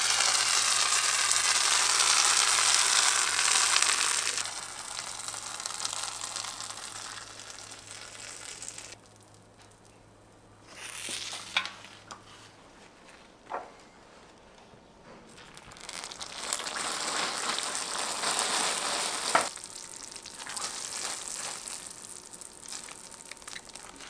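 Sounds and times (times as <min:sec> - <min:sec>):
hot syrup sizzling: 0:00.0 - 0:10.0, 0:15.3 - 0:24.0.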